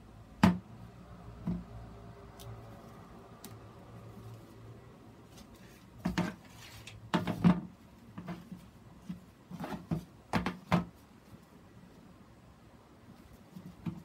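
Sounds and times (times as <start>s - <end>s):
hard plastic knocks and clatters: 6.0s - 6.4s, 7.0s - 11.0s.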